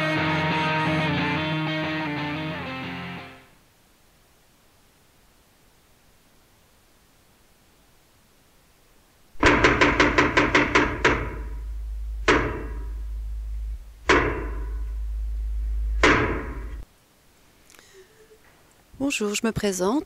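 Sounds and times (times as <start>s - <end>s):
sharp percussive hits: 9.4s - 16.8s
steady low rumble: 9.4s - 16.9s.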